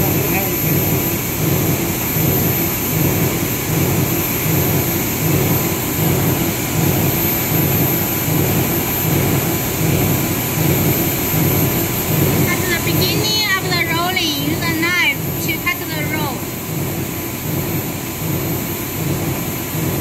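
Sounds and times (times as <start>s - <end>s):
high machine whine: 0.0s - 20.0s
machinery rumbling: 12.2s - 16.7s.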